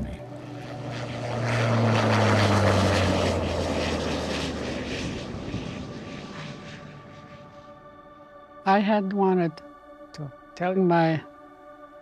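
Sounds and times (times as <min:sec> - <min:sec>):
engine drone: 0:00.0 - 0:09.0.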